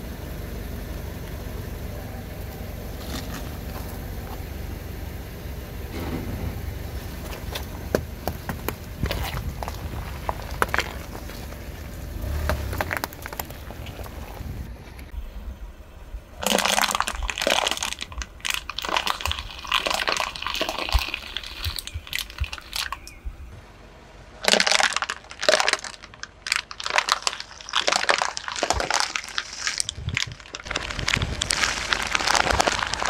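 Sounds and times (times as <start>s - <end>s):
plastic bottles crackling under tyre: 6.8s - 15.1s, 16.4s - 23.2s, 24.4s - 33.0s.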